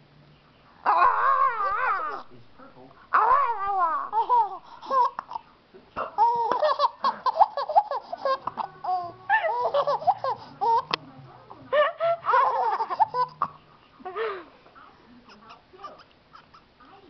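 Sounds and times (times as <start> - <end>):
baby squealing: 0.9 - 2.3, 3.1 - 5.4, 6.2 - 10.9
baby laughing: 3.2 - 5.5, 6.2 - 11.0, 11.7 - 14.4.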